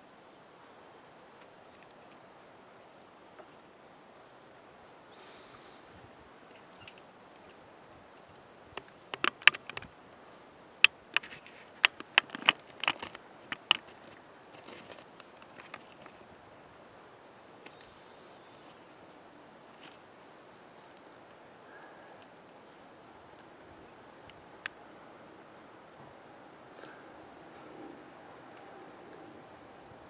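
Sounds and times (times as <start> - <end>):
faint steady hiss: 0.0 - 30.0
sharp clicks and taps: 8.8 - 9.9, 10.8 - 13.9.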